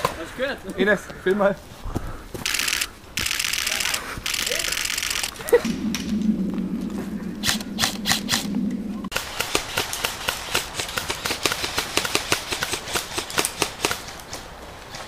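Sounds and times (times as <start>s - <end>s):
low hum: 4.8s - 9.2s
airsoft rifle shots snapping: 9.1s - 14.2s.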